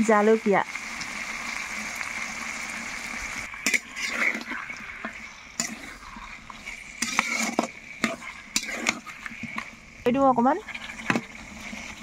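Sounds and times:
chicken sizzling in oil: 0.0s - 12.0s
metal spatula scraping pan: 3.4s - 9.8s, 10.4s - 12.0s.

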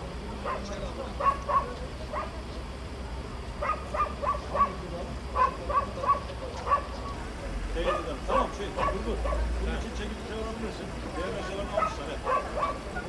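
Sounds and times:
dog barking: 0.4s - 2.4s, 3.6s - 7.1s, 7.8s - 9.5s, 11.7s - 13.0s.

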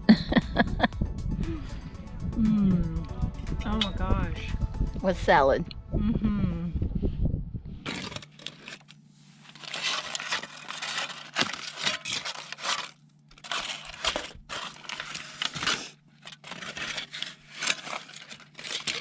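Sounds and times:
aluminium foil crinkling: 7.8s - 19.0s.

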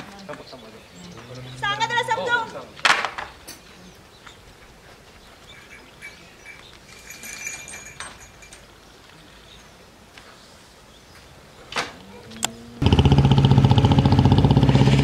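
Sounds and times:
faint high bird chirps: 5.2s - 9.7s.

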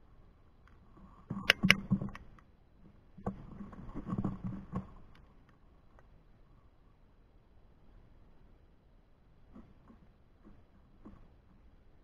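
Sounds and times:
knocks and scrapes near microphone: 3.2s - 5.0s.

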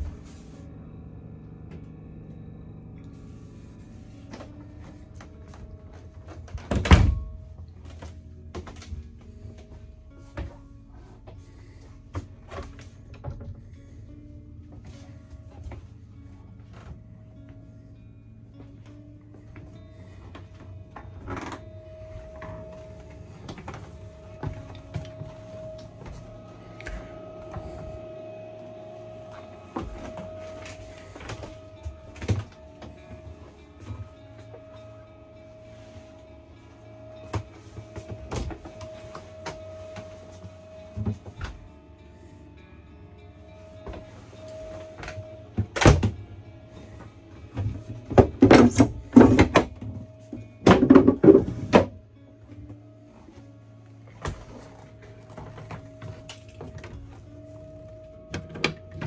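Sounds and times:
steady hum: 0.0s - 59.0s
knocks and clicks in wooden cabin: 4.2s - 11.5s, 12.1s - 13.8s, 18.6s - 36.0s, 36.9s - 41.9s, 43.4s - 52.8s, 54.1s - 59.0s.

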